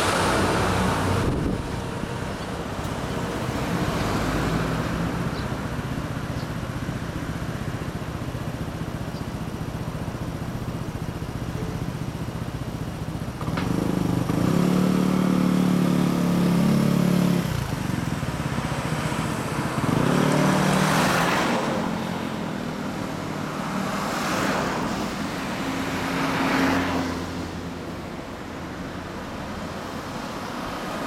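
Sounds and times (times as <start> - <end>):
scooter engine accelerating: 0.0 - 24.5
traffic noise: 0.0 - 31.0.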